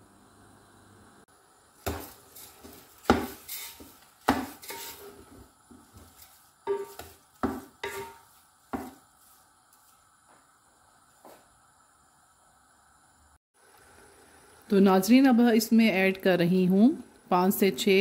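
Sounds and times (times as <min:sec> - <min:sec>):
wooden spatula scraping metal pot: 0:01.9 - 0:09.3.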